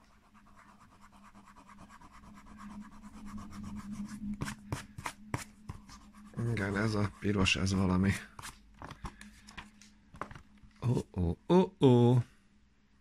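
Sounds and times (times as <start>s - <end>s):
eraser rubbing on paper: 0.0s - 8.6s.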